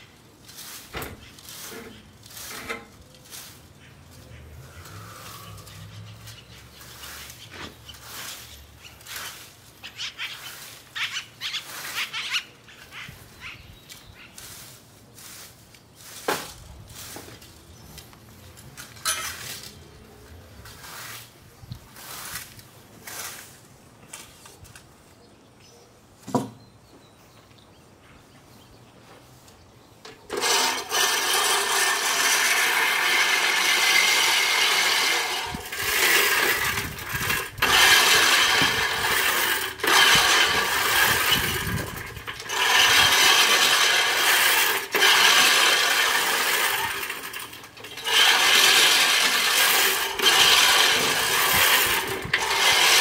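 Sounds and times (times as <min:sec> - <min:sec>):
reel mower blades whirring: 0:00.5 - 0:15.3, 0:30.0 - 0:53.0.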